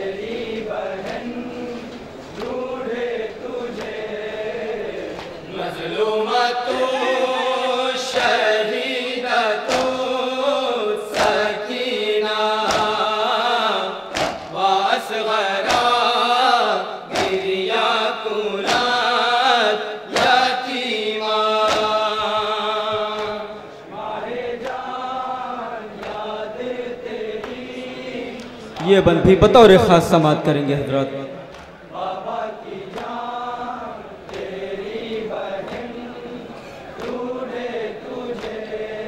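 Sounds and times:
men chanting into a microphone: 0:00.0 - 0:39.0
hands slapping chest: 0:12.7 - 0:12.9, 0:14.1 - 0:14.5, 0:21.6 - 0:21.9.

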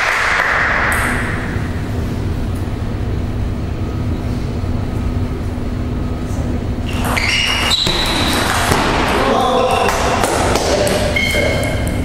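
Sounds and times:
spectators applauding: 0:00.0 - 0:01.0
low hum of hall: 0:00.0 - 0:12.0.

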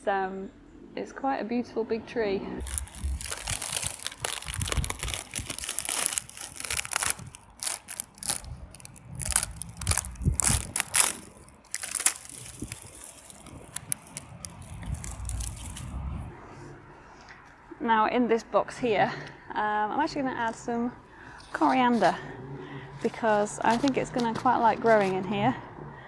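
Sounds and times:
bark peeling crackling: 0:02.6 - 0:15.8.

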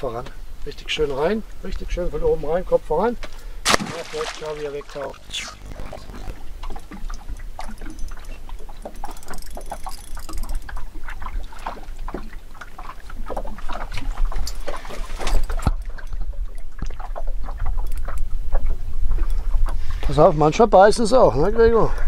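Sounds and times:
water splashing around boat: 0:03.0 - 0:20.1
low rumble: 0:04.8 - 0:07.0.

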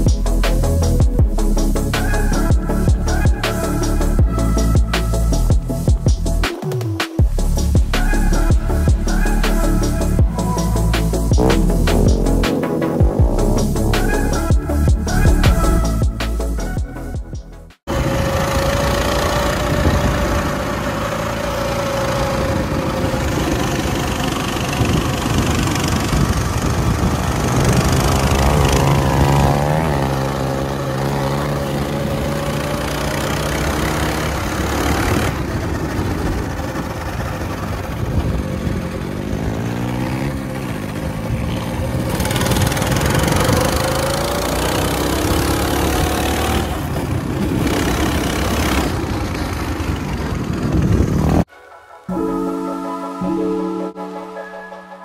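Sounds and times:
dirt bike engines revving: 0:00.0 - 0:06.5, 0:17.9 - 0:51.5.

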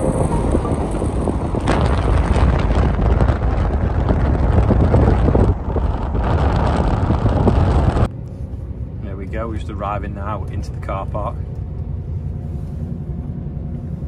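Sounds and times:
wind rushing: 0:00.0 - 0:08.1
car cabin hum: 0:00.0 - 0:14.0
car road noise rumble: 0:00.0 - 0:14.0.

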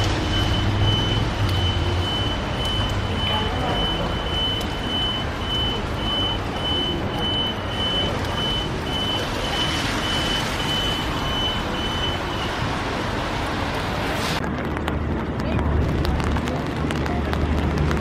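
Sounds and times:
reversing alarm beeping: 0:00.0 - 0:12.7
street traffic: 0:00.0 - 0:18.0.

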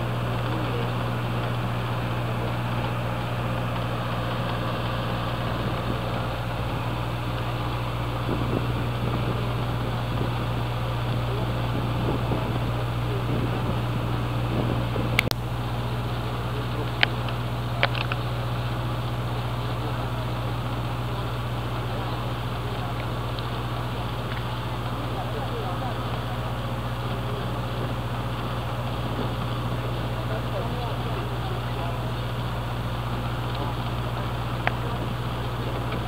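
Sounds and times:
wind noise: 0:00.0 - 0:15.4
boat engine humming: 0:00.0 - 0:36.0
water noise: 0:00.0 - 0:36.0.

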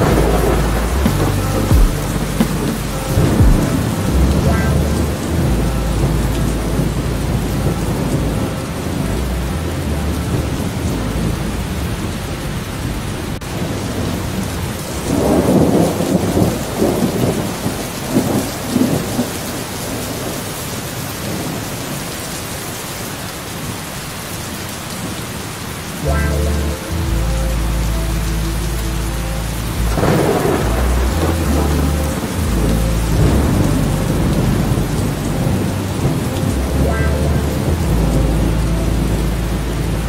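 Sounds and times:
steady rain: 0:00.0 - 0:40.0
rolling thunder: 0:29.4 - 0:40.0.

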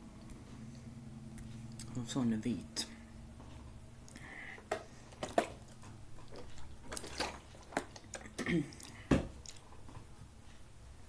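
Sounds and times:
person chewing: 0:00.7 - 0:02.0, 0:04.0 - 0:10.0.

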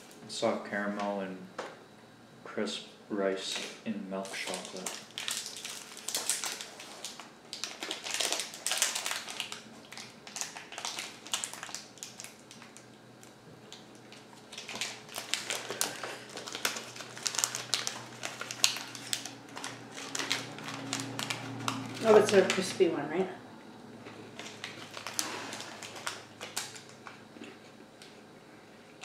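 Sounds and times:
wrapper crinkling: 0:04.2 - 0:22.8, 0:24.3 - 0:27.2.

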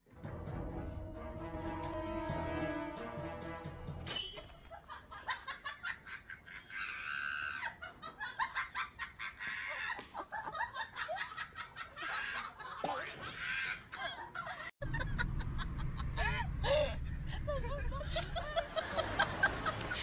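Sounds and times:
music: 0:00.0 - 0:04.2.

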